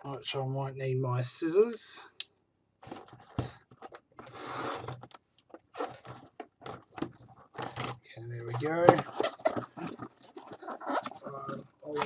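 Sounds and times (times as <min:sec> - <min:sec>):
scrape of box seal: 0:04.2 - 0:05.1
cardboard box being opened: 0:08.5 - 0:12.0.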